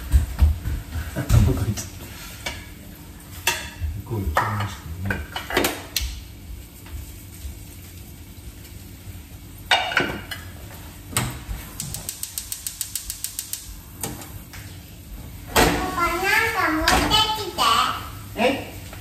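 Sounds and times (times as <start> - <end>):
food sizzling in oil: 1.9 - 19.0
frying pan clanking on grate: 9.7 - 14.2.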